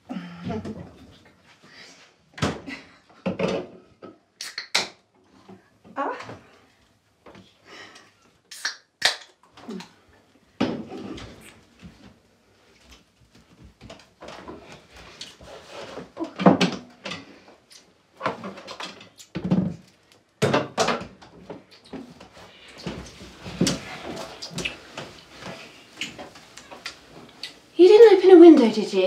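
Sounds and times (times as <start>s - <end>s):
breathing: 1.6s - 2.2s, 7.6s - 8.3s
lip smacks of kissing: 4.4s - 5.0s, 8.5s - 9.4s.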